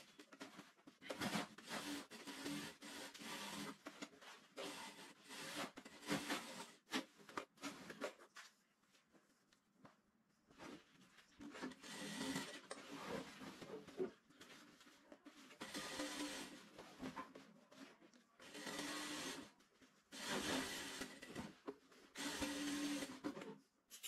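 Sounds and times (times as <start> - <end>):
sewing machine running: 1.2 - 3.8, 11.8 - 12.6, 15.6 - 16.6, 18.4 - 19.5, 20.2 - 21.4, 22.2 - 23.2.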